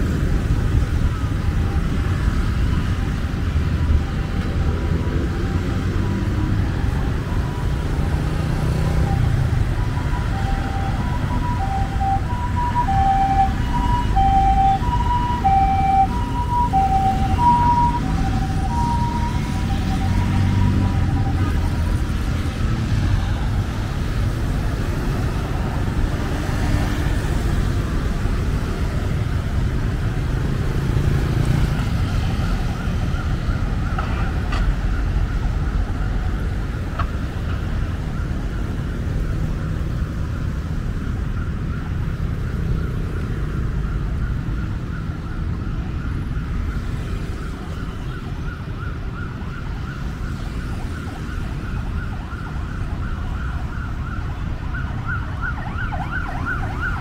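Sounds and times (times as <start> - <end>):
city street traffic rumbling: 0.0 - 57.0
high warbling siren: 6.1 - 23.5, 43.5 - 57.0.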